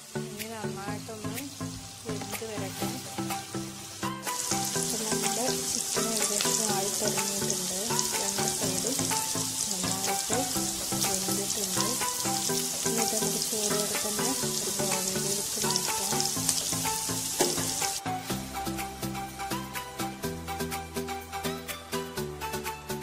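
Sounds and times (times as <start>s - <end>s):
chicken deep-frying in oil: 0.0s - 18.0s
background music with melody: 0.0s - 23.0s.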